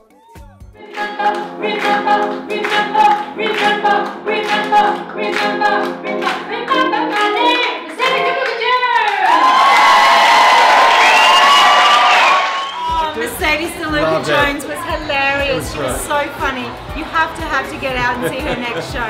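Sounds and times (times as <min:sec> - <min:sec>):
keyboard accompaniment: 0:00.0 - 0:08.7
audience applauding and cheering: 0:00.0 - 0:19.0
woman singing: 0:00.8 - 0:09.3
steady beat: 0:12.9 - 0:19.0.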